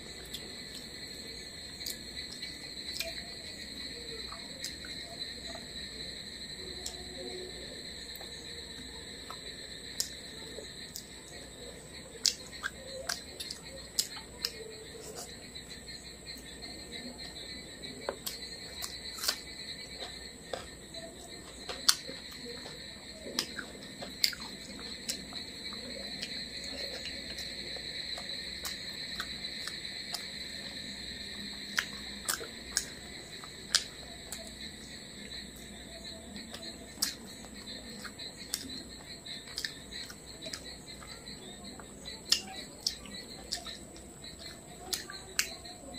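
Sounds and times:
squelches of rice being mixed: 0.0s - 45.9s
mouth clicks and lip smacks: 12.2s - 15.3s, 18.2s - 19.4s, 31.7s - 34.5s, 36.5s - 37.2s, 38.0s - 38.8s, 39.5s - 40.6s, 42.3s - 43.8s.

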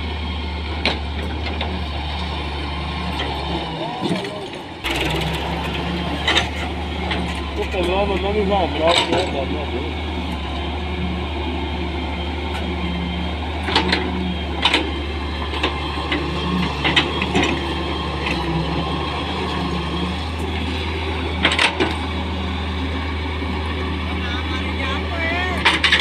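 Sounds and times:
excavator diesel engine running: 0.0s - 26.0s
digging and scraping earth: 13.5s - 22.5s.

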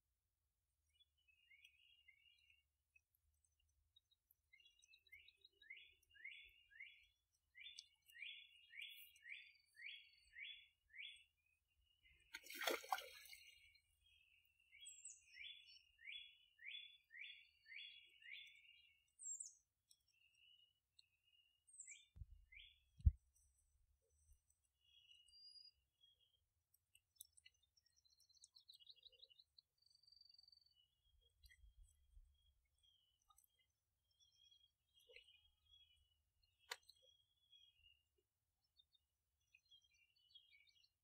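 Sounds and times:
songbird chirping: 0.0s - 41.0s
water splash: 12.3s - 13.5s
wings flapping on water: 12.3s - 13.5s.

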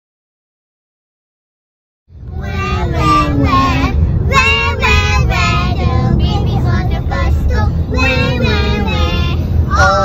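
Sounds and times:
car road noise rumble: 2.1s - 10.0s
child singing: 2.3s - 10.0s.

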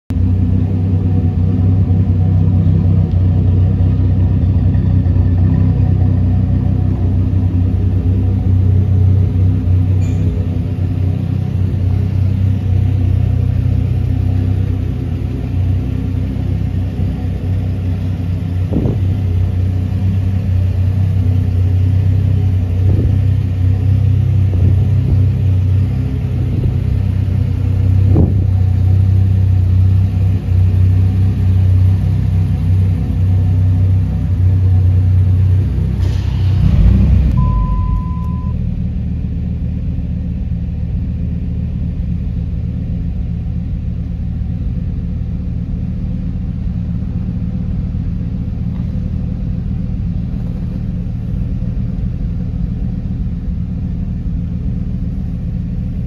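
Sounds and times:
engine idling deep rumble: 0.1s - 56.0s
engine revving blips: 36.0s - 38.6s.

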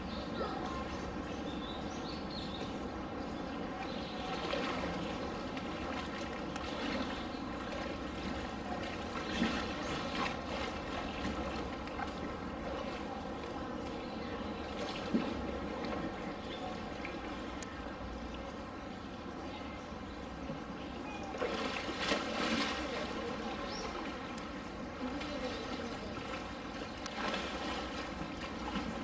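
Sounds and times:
low even hum: 0.0s - 29.0s
knocks or splashes: 4.3s - 13.0s, 14.7s - 16.2s, 21.3s - 24.3s, 27.1s - 29.0s.

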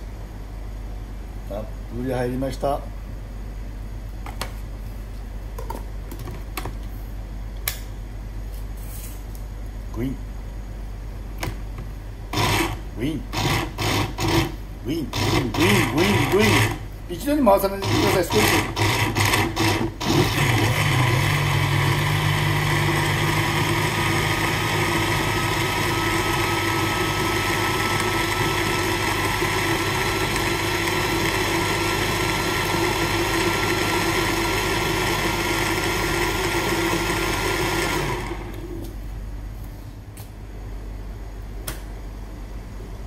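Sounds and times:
blender motor whining: 12.3s - 16.8s, 17.8s - 38.8s.

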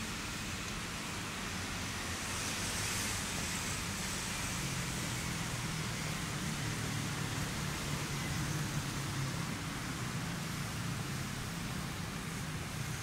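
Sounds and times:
city traffic noise: 0.0s - 13.0s.

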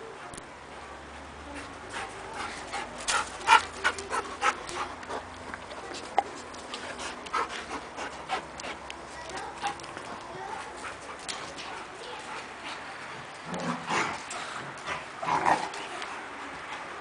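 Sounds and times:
dog panting: 1.5s - 13.2s.

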